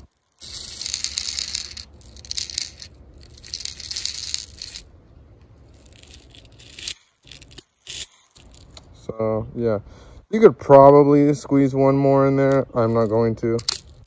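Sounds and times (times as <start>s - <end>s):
metal pellets rattling into magazine: 0.0s - 4.9s, 5.7s - 8.8s, 12.8s - 14.0s.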